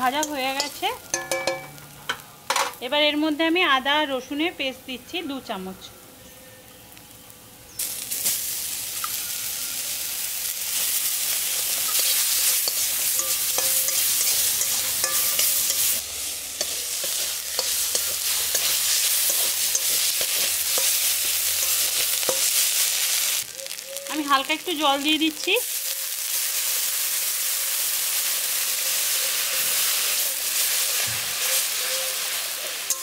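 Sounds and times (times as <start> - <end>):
paste sizzling in hot oil: 7.8 - 33.0
metal spatula scraping pan: 11.7 - 22.6.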